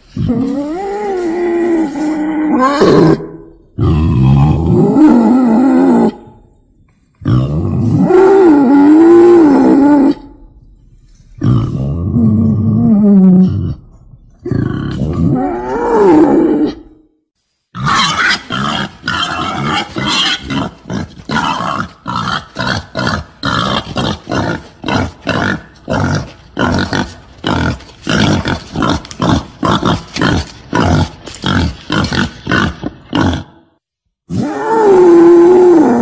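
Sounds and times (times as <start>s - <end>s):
wild boar pitched call: 17.8s - 26.0s.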